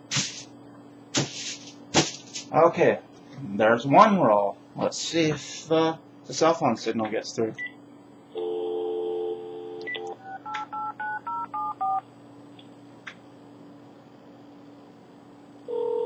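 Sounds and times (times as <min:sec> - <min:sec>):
steady phone tone: 0:08.3 - 0:12.0, 0:15.7 - 0:16.0
phone dial tone: 0:08.4 - 0:12.0, 0:15.7 - 0:16.0.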